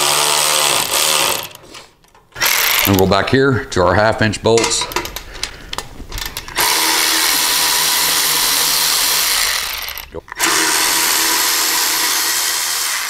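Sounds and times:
cordless ratchet motor whirring: 2.4 - 3.0, 6.5 - 13.0.

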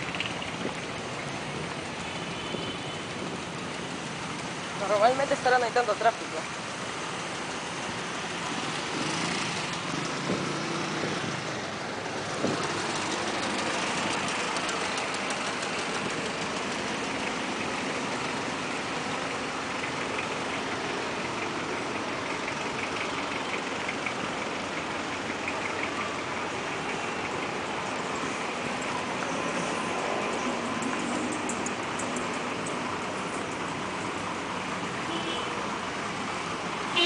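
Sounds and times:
car engines idling and creeping: 0.0 - 37.0.

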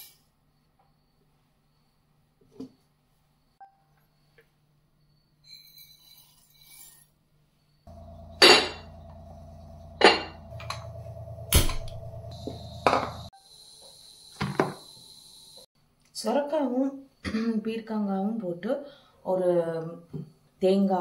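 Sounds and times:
steady hum: 7.9 - 13.3.

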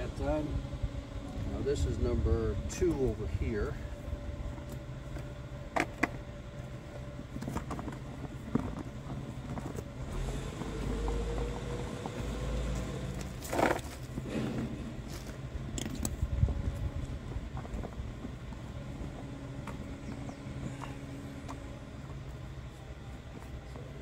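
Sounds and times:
low rumble: 0.0 - 24.0
handling clicks and rustling: 4.6 - 10.0.

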